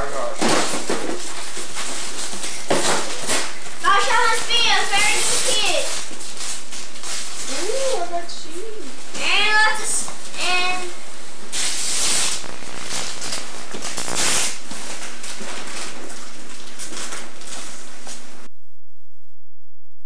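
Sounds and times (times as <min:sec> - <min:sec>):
paper rustling and tearing: 0:00.4 - 0:08.2, 0:11.6 - 0:18.3.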